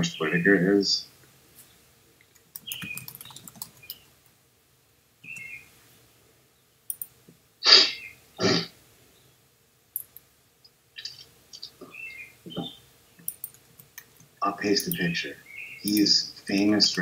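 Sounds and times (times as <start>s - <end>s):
faint clicks: 2.2s - 4.4s, 6.9s - 7.4s, 10.0s - 11.9s, 13.2s - 15.1s
man coughing: 7.7s - 8.7s.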